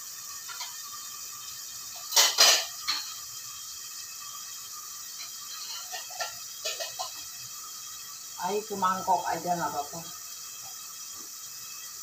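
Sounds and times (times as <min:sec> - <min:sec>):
kitchenware clinking: 0:02.0 - 0:03.2, 0:05.2 - 0:07.3.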